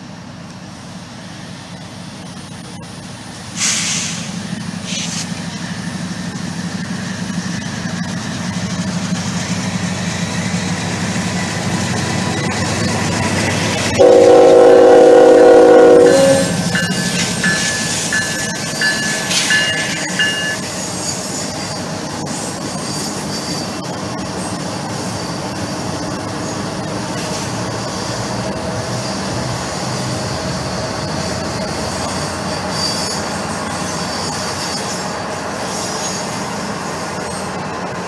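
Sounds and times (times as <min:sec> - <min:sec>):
train wheels rumbling on rail: 0:00.0 - 0:38.0
high-pitched wheel squeal: 0:14.0 - 0:26.5, 0:31.0 - 0:36.5.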